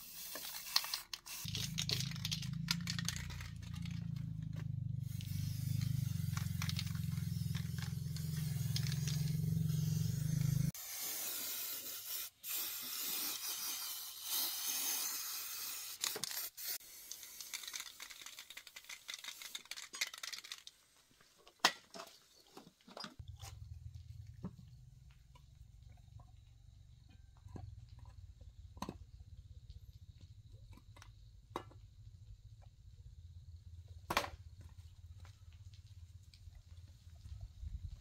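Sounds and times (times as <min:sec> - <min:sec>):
spray can hissing: 0:00.0 - 0:03.4, 0:05.0 - 0:20.6
spray can ball rattling: 0:00.0 - 0:20.8.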